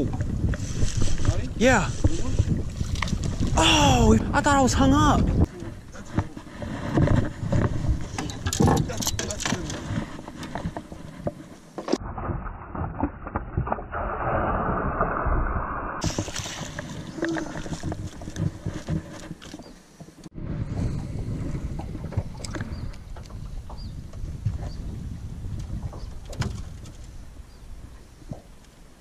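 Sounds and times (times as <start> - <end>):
water splashing: 0.0 - 5.2, 11.9 - 19.7.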